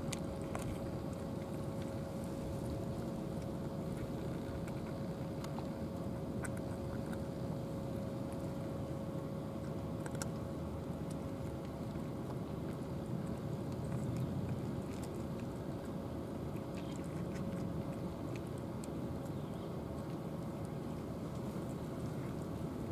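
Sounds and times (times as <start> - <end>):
cats crunching kibble: 0.0 - 22.9
steady low rumble: 0.0 - 22.9
thin steady hum: 0.0 - 22.9.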